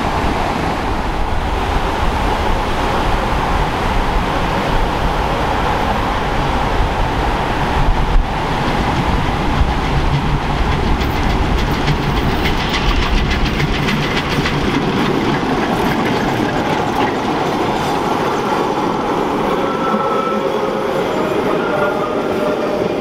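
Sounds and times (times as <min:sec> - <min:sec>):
steam locomotive beats: 0:08.5 - 0:23.0
train wheels clacking: 0:08.7 - 0:23.0.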